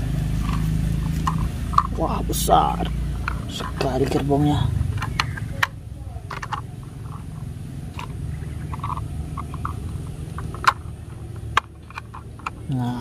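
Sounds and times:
low rumble: 0.0 - 13.0
plastic toy train clicks and taps: 4.9 - 7.2, 7.9 - 12.8.

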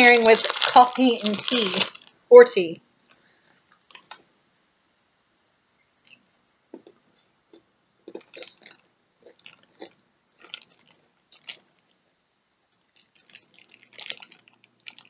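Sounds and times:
biscuit crunching while chewed: 0.0 - 2.2, 6.8 - 12.0, 12.8 - 15.0
plastic packet crinkling: 0.0 - 3.2, 3.9 - 4.2, 8.1 - 12.0, 12.8 - 15.0.

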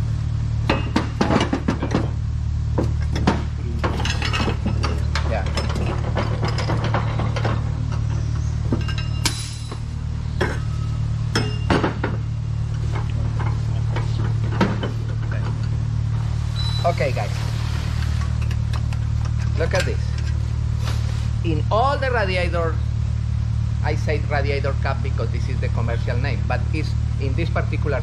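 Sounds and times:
steady low hum: 0.0 - 28.0
metal clinks and knocks: 2.8 - 15.8.

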